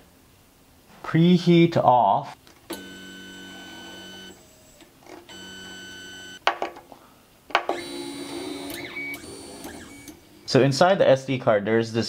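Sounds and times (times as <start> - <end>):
stepper motor whine: 7.8 - 10.2.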